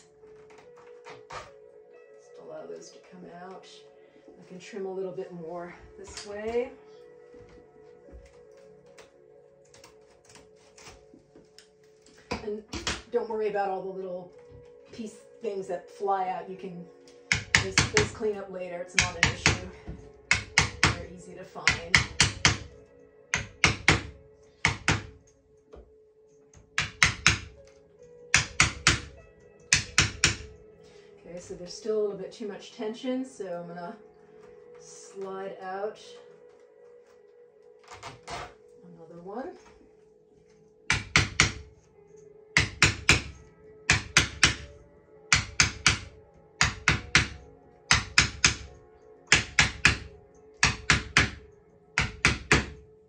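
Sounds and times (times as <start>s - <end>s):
faint background music: 0.0s - 53.0s
wooden mallet knocking on wedge: 17.3s - 18.2s, 19.0s - 21.1s, 21.7s - 22.7s, 23.4s - 25.2s, 26.8s - 27.6s, 28.3s - 30.5s, 40.9s - 41.7s, 42.6s - 44.7s, 45.3s - 48.7s, 49.3s - 51.4s, 52.0s - 52.8s.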